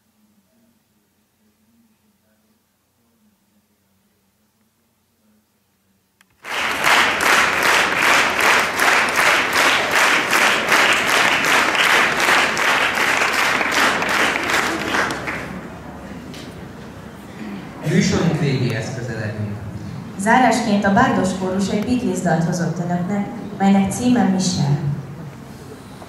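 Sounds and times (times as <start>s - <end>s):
audience rhythmic clapping: 6.3s - 16.6s.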